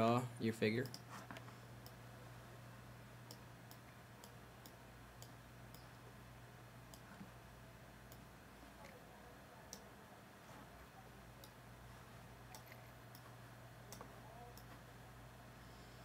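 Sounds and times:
faint low hum: 0.0s - 16.0s
computer mouse clicks: 0.8s - 2.0s, 12.5s - 13.3s.

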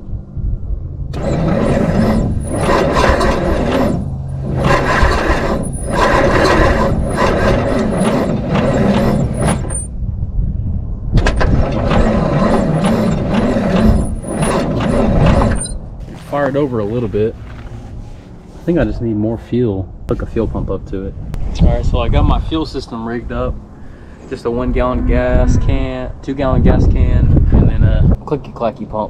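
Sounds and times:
engine starter cranking: 1.1s - 9.9s, 11.2s - 15.8s.

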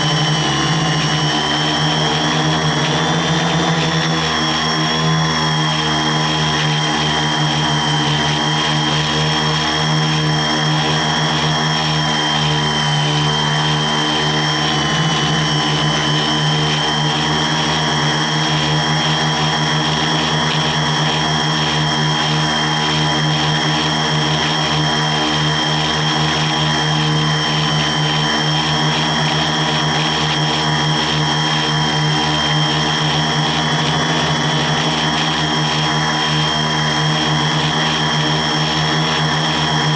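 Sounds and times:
quadcopter motors droning: 0.0s - 39.9s.

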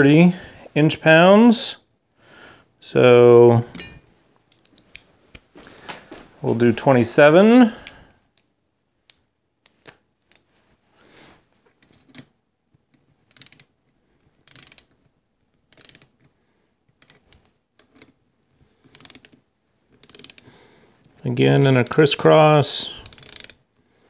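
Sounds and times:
torque wrench ratchet clicking: 13.3s - 13.7s, 14.4s - 14.9s, 15.7s - 16.1s, 18.9s - 19.4s, 20.0s - 20.4s, 23.0s - 23.6s.

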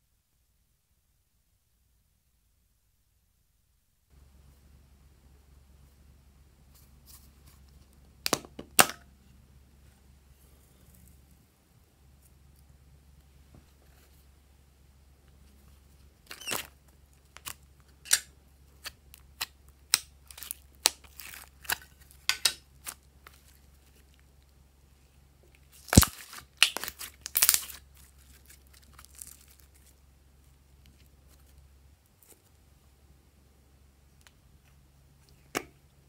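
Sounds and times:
slime clicking and crackling: 17.2s - 23.5s, 25.7s - 29.9s
slime snapping: 25.9s - 27.8s.

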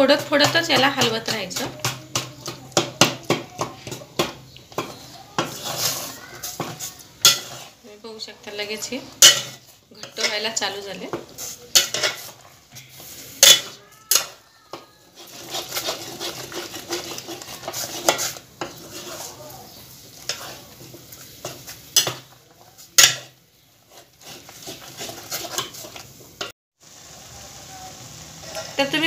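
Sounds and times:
spoon scraping a metal pot: 0.0s - 7.8s, 8.7s - 19.4s, 20.1s - 26.5s
spoon clanking on pot: 6.5s - 7.7s, 9.2s - 19.1s, 21.4s - 23.4s.

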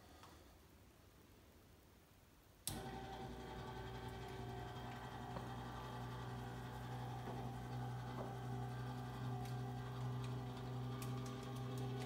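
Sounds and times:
electric lift motor humming: 2.7s - 12.0s.

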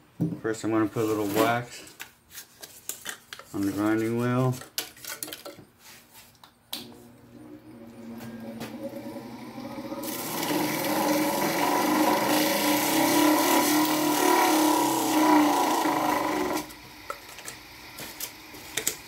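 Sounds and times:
bench grinder motor hum: 8.8s - 16.7s
wax rubbing on grinding wheel: 10.1s - 16.7s.

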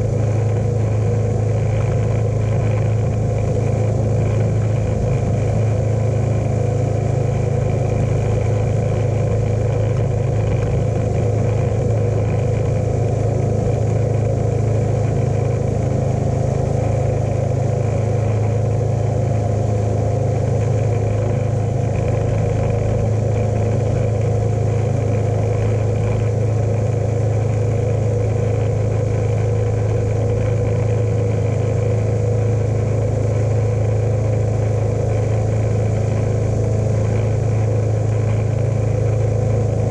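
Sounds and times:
lawn tractor engine droning: 0.0s - 39.9s.

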